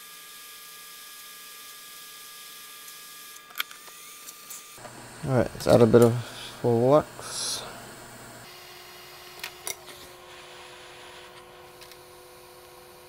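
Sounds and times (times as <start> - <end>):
faint steady hum: 4.8 - 8.5.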